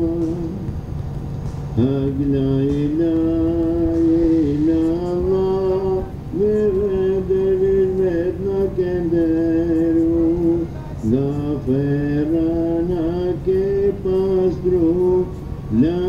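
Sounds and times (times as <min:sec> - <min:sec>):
person singing a hymn: 0:00.0 - 0:00.8, 0:01.8 - 0:16.0
low steady drone: 0:00.0 - 0:16.0.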